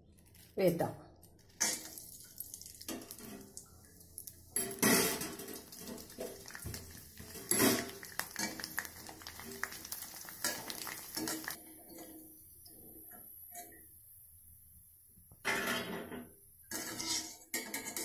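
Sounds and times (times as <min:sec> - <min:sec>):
food sizzling in hot oil: 0:01.6 - 0:11.6
wire skimmer scraping metal pan: 0:04.6 - 0:06.4, 0:07.2 - 0:08.7, 0:15.5 - 0:18.0.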